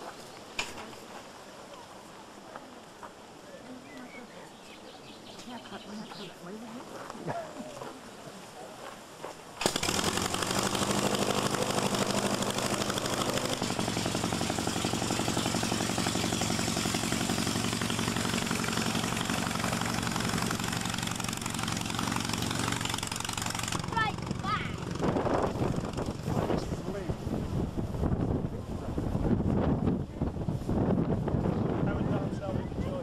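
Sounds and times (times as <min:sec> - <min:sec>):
autogyro engine and propeller: 0:09.6 - 0:33.0.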